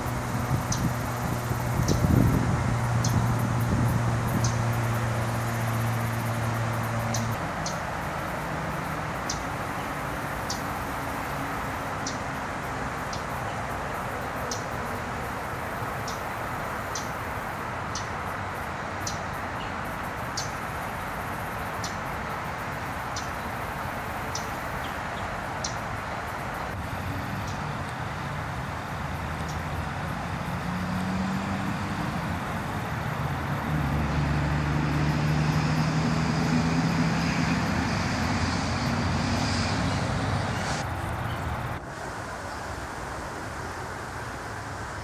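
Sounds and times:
distant traffic: 0.0s - 45.0s
low engine hum: 0.0s - 45.0s
songbird chip notes: 4.3s - 7.8s.

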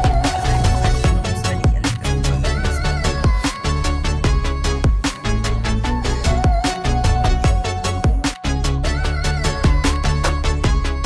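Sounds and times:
steady drum beat: 0.0s - 5.6s.

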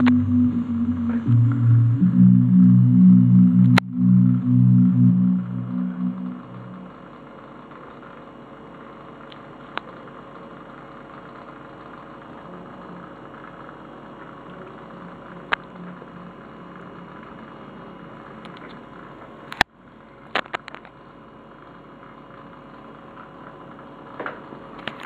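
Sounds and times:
aquarium equipment humming: 0.0s - 7.2s.

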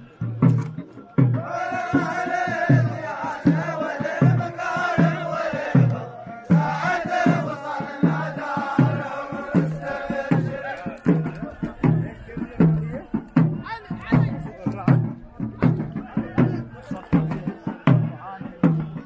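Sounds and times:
men chanting in unison: 0.0s - 19.0s
steady drum beat: 0.0s - 19.0s.

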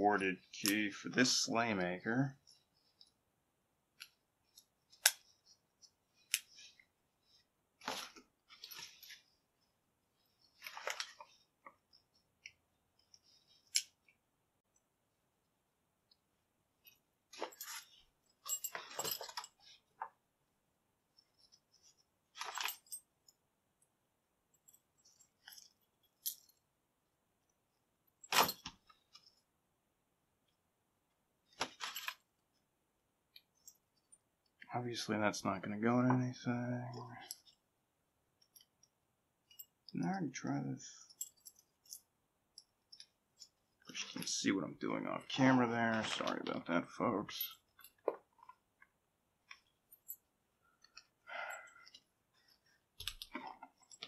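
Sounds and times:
keys jangling: 17.4s - 19.6s.

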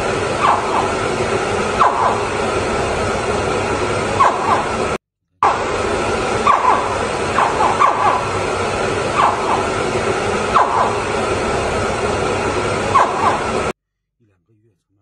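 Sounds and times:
hatchling crocodiles chirping: 0.4s - 1.0s, 1.7s - 2.4s, 4.2s - 4.8s, 6.4s - 8.4s, 9.1s - 9.8s, 10.4s - 11.2s, 12.9s - 13.6s.

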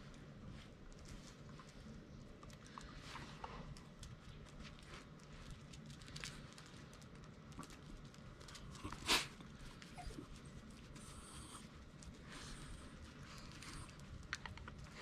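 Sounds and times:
dog claws clicking and scraping: 0.1s - 15.0s
dog breathy huff: 8.8s - 9.4s.

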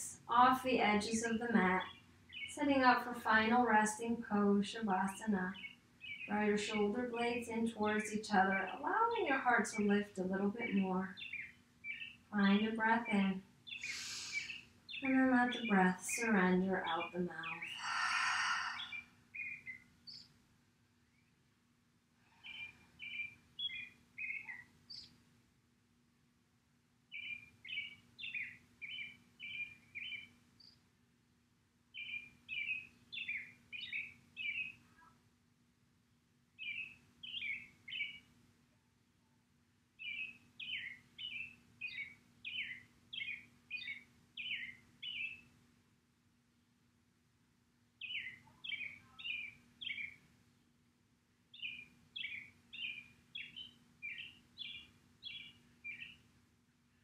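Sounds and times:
songbird chirping: 0.0s - 21.7s, 22.4s - 25.2s, 27.0s - 30.9s, 31.8s - 35.2s, 36.5s - 38.4s, 40.0s - 45.6s, 47.9s - 57.0s
faint steady hum: 0.0s - 57.0s.

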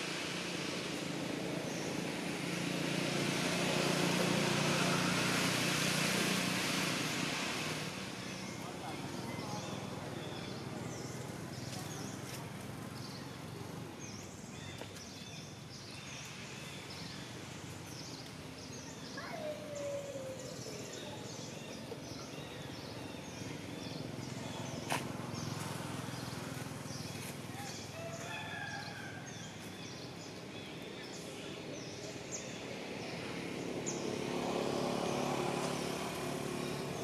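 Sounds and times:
small birds chirping: 8.1s - 37.0s.

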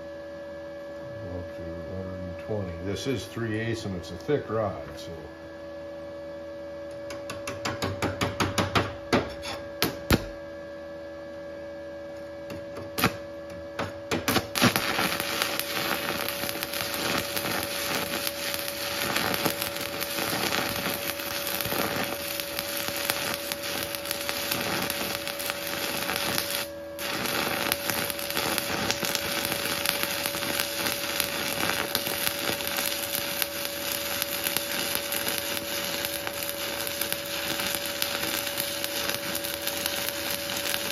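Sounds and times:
electrical hum: 0.0s - 40.9s
welding arc crackle: 14.1s - 40.9s
welding rod sputters and clicks: 14.1s - 40.9s.

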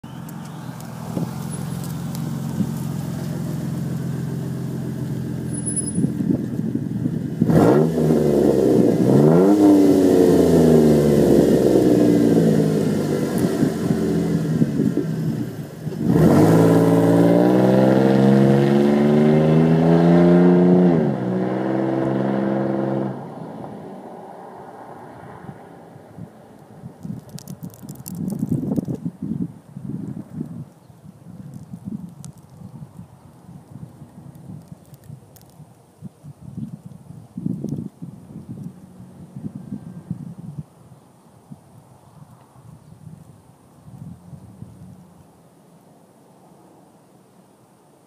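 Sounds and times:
unmuffled engine exhaust: 0.0s - 26.4s
vehicle accelerating and driving past: 7.4s - 26.5s.

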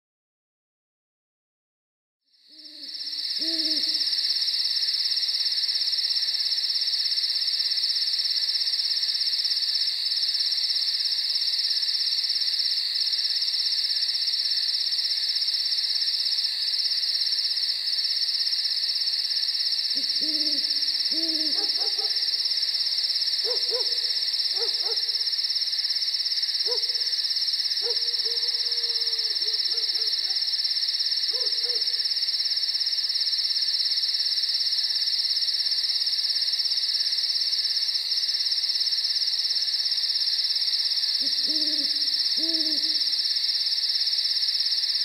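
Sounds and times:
high-pitched insect chorus: 2.3s - 45.0s
owl hooting: 2.5s - 4.2s, 19.9s - 22.3s, 23.4s - 25.2s, 26.6s - 27.1s, 27.8s - 30.4s, 31.3s - 32.0s, 41.2s - 43.2s.

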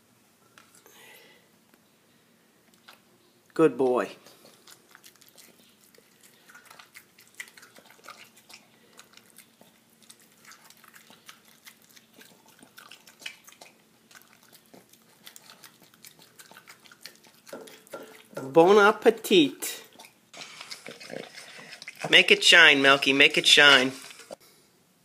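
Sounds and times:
dog chewing and licking: 4.2s - 18.6s, 19.8s - 24.4s.

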